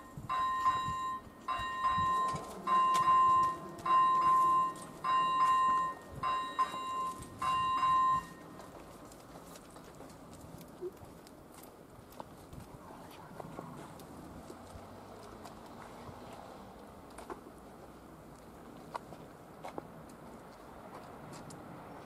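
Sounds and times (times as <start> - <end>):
level crossing warning bell: 0.0 - 9.3.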